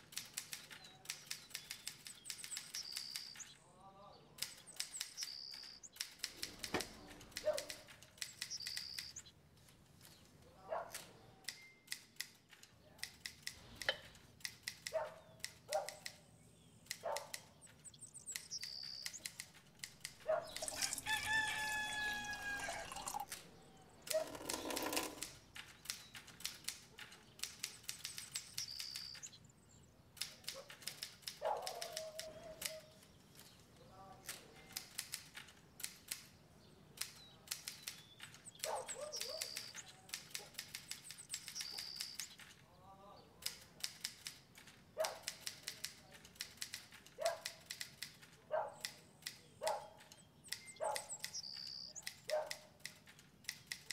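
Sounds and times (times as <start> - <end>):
bird chirps: 0.2 - 9.4, 14.7 - 43.5, 48.7 - 52.6.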